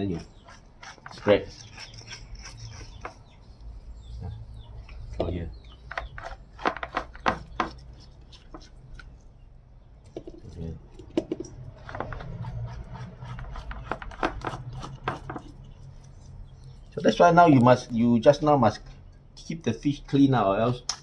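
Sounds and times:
spoon scraping fish flesh: 0:00.3 - 0:03.4, 0:12.0 - 0:16.8.

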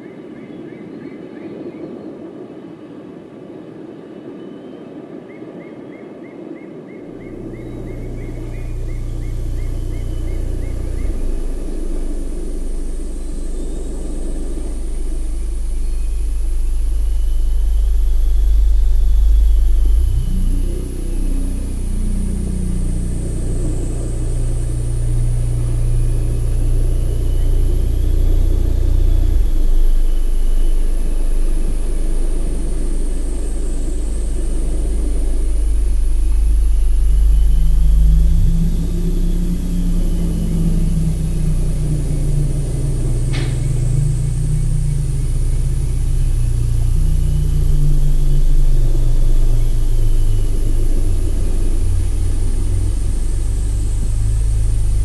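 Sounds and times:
faint high sweeping tones: 0:07.0 - 0:55.0
low rumbling drone: 0:07.0 - 0:55.0
sharp click: 0:43.3 - 0:43.8.

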